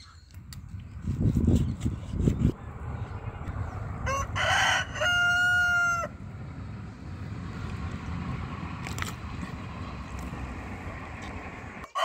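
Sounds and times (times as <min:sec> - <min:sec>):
rooster crowing: 0:03.6 - 0:07.0.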